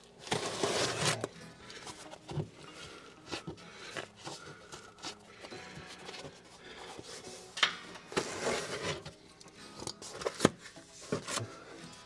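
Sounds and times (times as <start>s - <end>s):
foam rustling and scraping: 0.2s - 2.3s, 8.2s - 9.1s.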